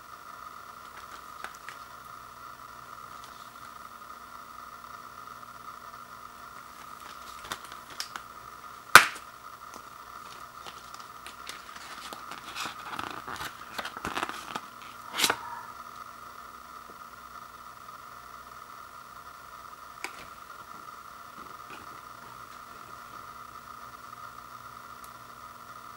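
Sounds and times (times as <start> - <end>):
faint hum: 0.0 - 25.9
case and paper insert rustling: 10.2 - 15.5.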